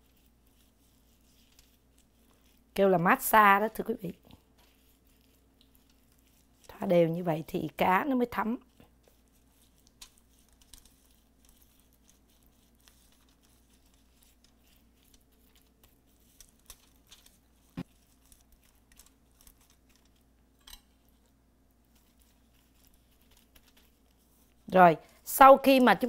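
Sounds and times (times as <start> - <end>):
foil crinkling: 8.6 - 20.3.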